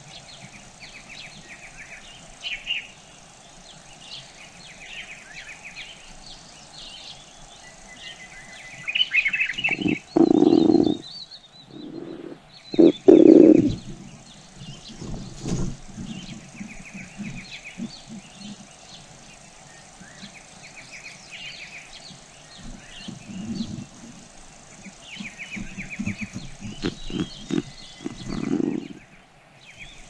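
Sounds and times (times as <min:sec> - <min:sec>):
birds chirping: 0:00.0 - 0:30.0
animal grunting: 0:09.6 - 0:11.0, 0:11.7 - 0:13.9, 0:26.6 - 0:29.1.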